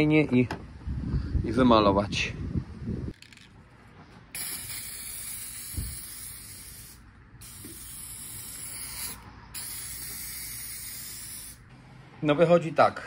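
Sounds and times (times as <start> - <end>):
aerosol paint can spraying: 4.3 - 11.6.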